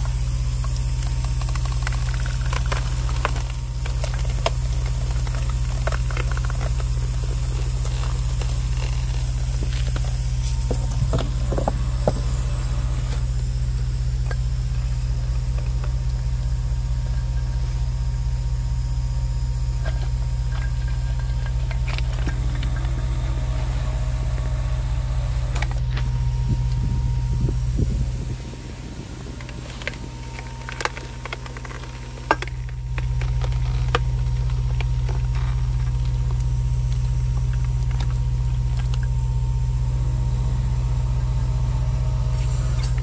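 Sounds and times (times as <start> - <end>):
low hydraulic hum: 0.0 - 43.0
rock cracking with sharp ticks: 0.6 - 12.2, 29.2 - 39.2.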